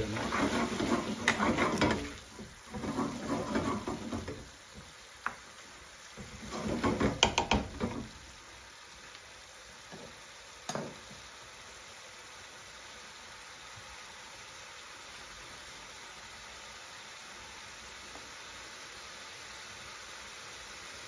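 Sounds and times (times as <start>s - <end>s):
faint steady hiss: 0.0s - 21.0s
wet food sizzling: 0.0s - 21.0s
spoon scraping a metal pan: 0.2s - 4.5s, 6.2s - 8.0s
spoon clacking in pan: 6.4s - 8.1s, 10.7s - 11.1s.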